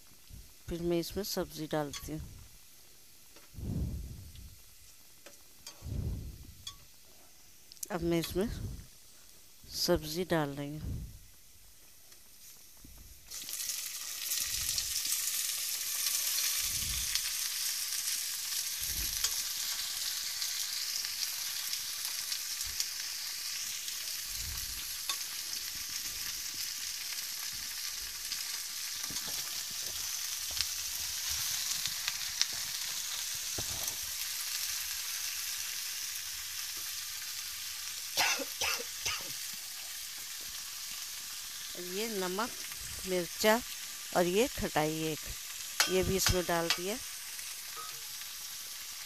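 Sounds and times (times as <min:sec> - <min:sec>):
vegetables sizzling in oil: 0:00.0 - 0:49.0
metal spoon stirring in pot: 0:06.6 - 0:06.9, 0:45.8 - 0:47.0, 0:47.7 - 0:48.2.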